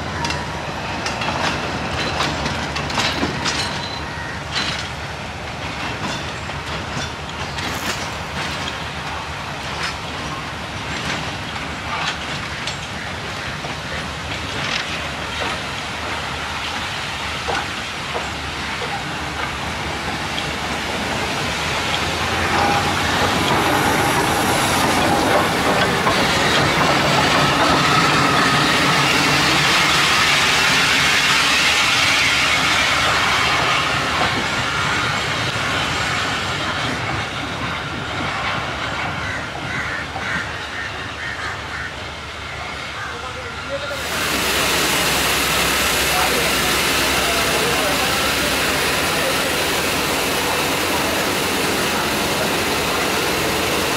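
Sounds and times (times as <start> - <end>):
train wheels clicking over rail joints: 0.2 - 40.7
steam hissing: 14.0 - 37.2, 43.9 - 53.9.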